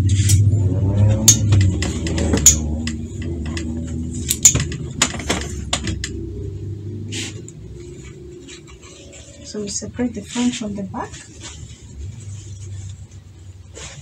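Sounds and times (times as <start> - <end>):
low steady hum: 0.0 - 14.0
fabric rustling: 7.0 - 14.0.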